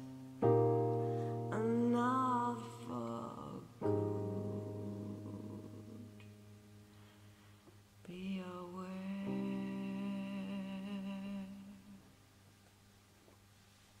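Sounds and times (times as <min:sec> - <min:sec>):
keyboard chord: 0:00.0 - 0:07.0
person humming: 0:00.8 - 0:06.4, 0:08.1 - 0:12.1.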